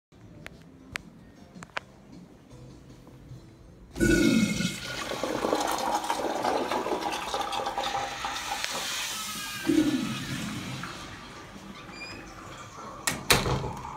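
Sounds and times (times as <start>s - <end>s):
urinal flushing water rush: 4.0s - 13.2s.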